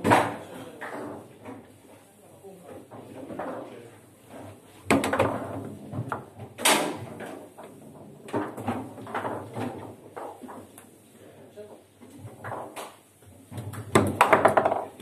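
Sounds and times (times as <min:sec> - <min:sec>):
foosball ball knocks: 0:04.9 - 0:07.6, 0:13.6 - 0:15.0.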